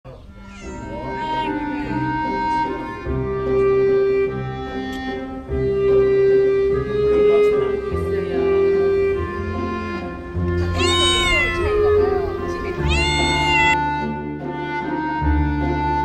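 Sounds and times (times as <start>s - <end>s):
slow background music: 0.1s - 16.0s
cat meowing: 0.2s - 2.4s, 10.4s - 13.8s.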